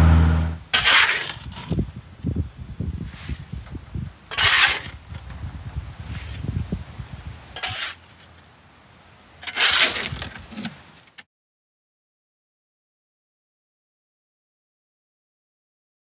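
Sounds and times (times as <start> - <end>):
shovel scraping metal bucket: 0.2 - 1.8, 4.3 - 5.2, 6.0 - 6.5, 7.6 - 8.4, 9.4 - 10.8.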